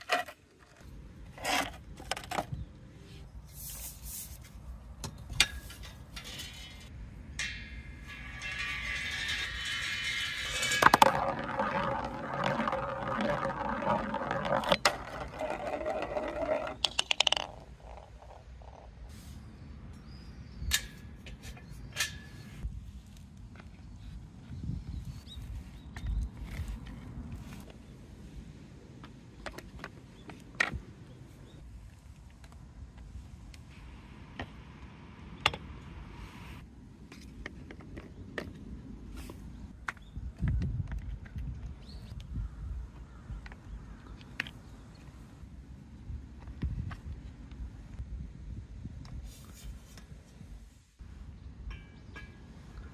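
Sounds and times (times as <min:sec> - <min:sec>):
marble whirring round funnel: 0:07.8 - 0:18.9
marble rattling into wooden bowl: 0:08.2 - 0:18.9
marble clattering into plastic funnel: 0:08.5 - 0:18.3.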